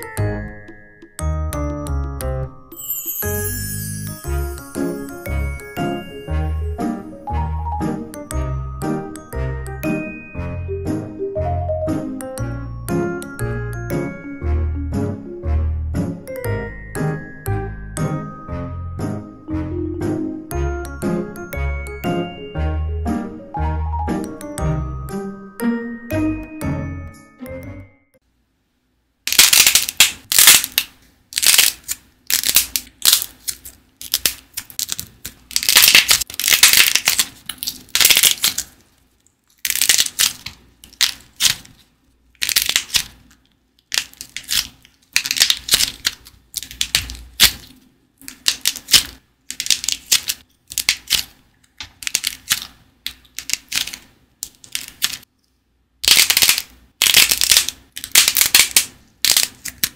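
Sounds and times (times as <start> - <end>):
dried clay crackling when crushed: 29.3 - 51.3.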